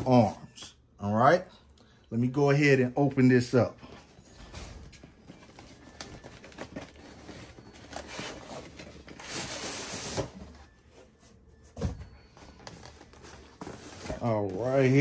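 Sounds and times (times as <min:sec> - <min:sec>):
cardboard rustling and scraping: 0:04.9 - 0:15.0.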